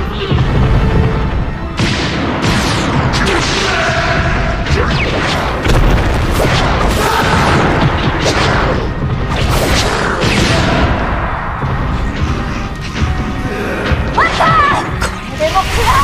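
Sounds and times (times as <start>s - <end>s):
background music: 0.0s - 16.0s
heavy booms and impact hits: 0.3s - 13.4s.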